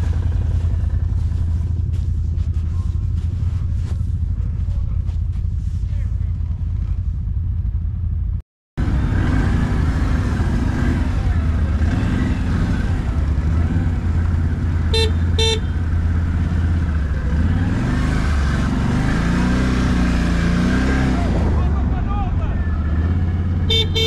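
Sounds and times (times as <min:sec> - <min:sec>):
atv engine running: 0:00.0 - 0:24.0
horn toots: 0:14.8 - 0:16.0, 0:22.7 - 0:24.0.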